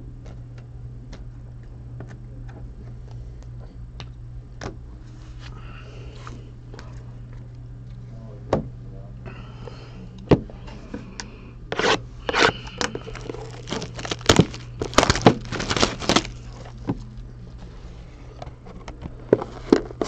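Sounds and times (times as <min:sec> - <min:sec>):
steady low hum: 0:00.0 - 0:20.0
cards and packaging handled: 0:11.7 - 0:17.2.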